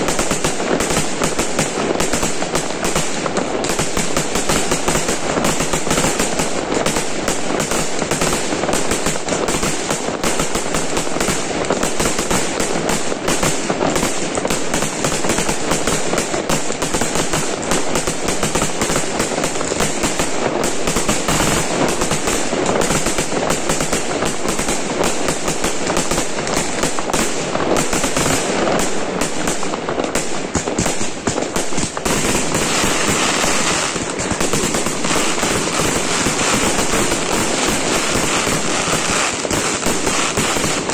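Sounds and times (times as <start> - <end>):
fireworks crackling: 0.0 - 40.9
fireworks shell bursts: 30.5 - 40.9.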